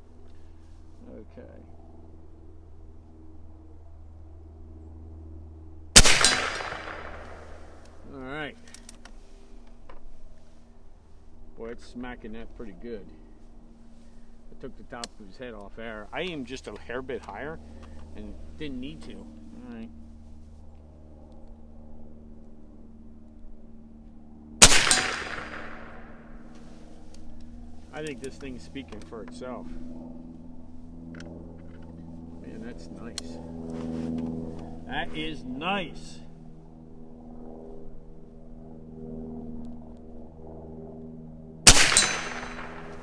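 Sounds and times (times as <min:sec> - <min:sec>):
steady low hum: 0:00.0 - 0:43.0
air rifle shot crack: 0:06.0 - 0:07.8, 0:24.6 - 0:26.2, 0:41.7 - 0:43.0.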